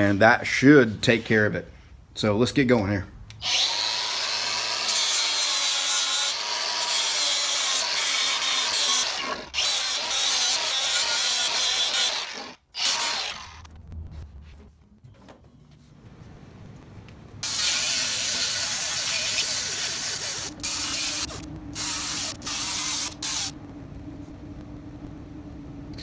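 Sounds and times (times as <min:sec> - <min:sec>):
die grinder grinding metal: 0:03.4 - 0:13.7, 0:17.4 - 0:23.5.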